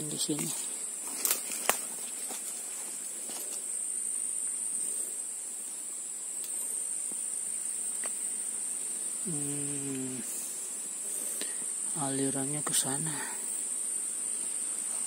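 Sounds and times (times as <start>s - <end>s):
insects droning whine: 0.0s - 15.0s
faint ticks: 6.4s - 7.2s.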